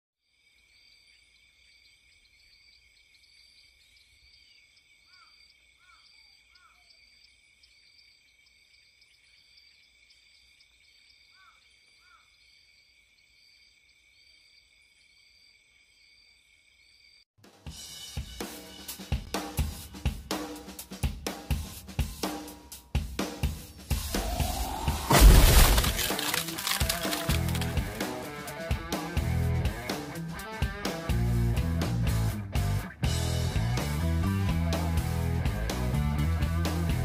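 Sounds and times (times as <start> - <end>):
insects trilling: 0.2 - 17.2, 24.0 - 28.1
bird calls: 3.7 - 7.2, 11.3 - 12.4.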